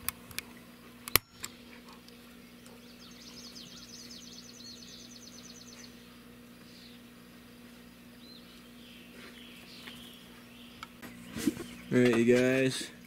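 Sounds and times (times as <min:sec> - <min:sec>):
faint low hum: 0:00.0 - 0:13.0
songbird trilling: 0:02.4 - 0:07.1, 0:08.2 - 0:12.1.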